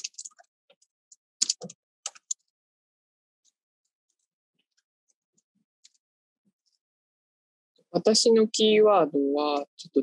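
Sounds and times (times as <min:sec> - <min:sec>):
computer keyboard typing: 0:01.4 - 0:02.4.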